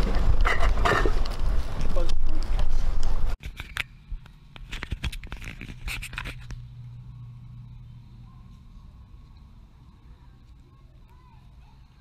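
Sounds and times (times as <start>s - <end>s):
faint low hum: 3.7s - 12.0s
camera handling rustling: 4.6s - 6.6s
loud low outdoor rumble: 5.4s - 12.0s.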